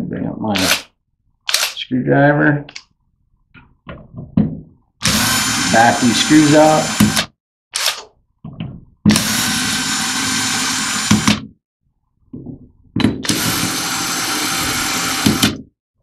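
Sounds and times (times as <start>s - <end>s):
power screwdriver running: 5.0s - 8.0s, 9.1s - 11.4s, 13.2s - 15.6s.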